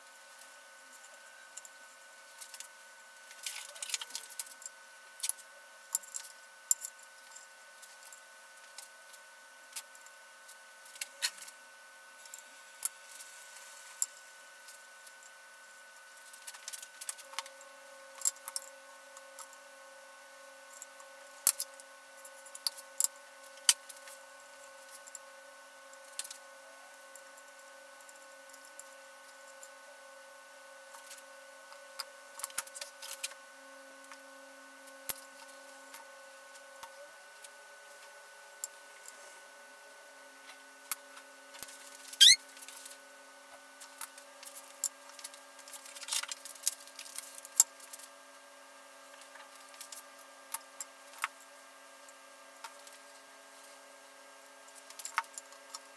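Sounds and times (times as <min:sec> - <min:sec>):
faint steady hum: 0:00.0 - 0:55.9
small tools clicking and rattling: 0:03.3 - 0:08.9, 0:43.8 - 0:48.1
short rising squeak: 0:42.2 - 0:42.4.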